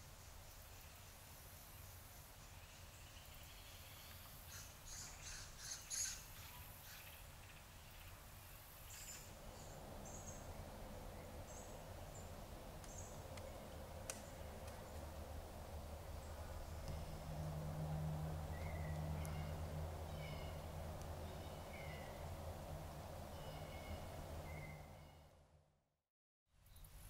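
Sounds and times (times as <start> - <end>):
bird chirps: 23.3 - 25.3.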